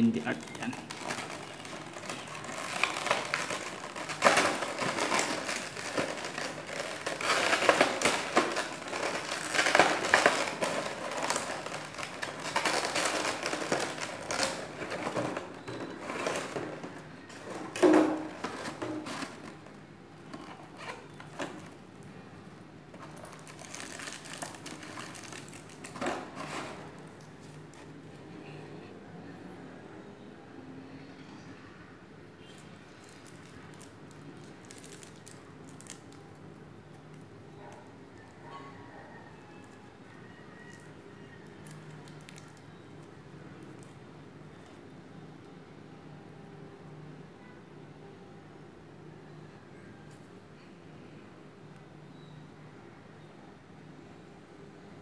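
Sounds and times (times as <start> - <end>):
plastic packaging crinkling: 0.0 - 28.2, 32.5 - 37.3, 40.7 - 44.8.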